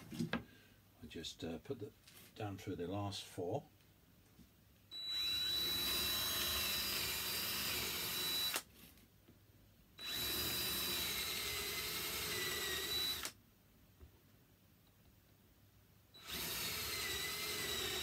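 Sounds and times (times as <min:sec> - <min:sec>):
cordless drill boring wood: 0:05.0 - 0:08.7, 0:10.0 - 0:13.4, 0:16.2 - 0:18.0.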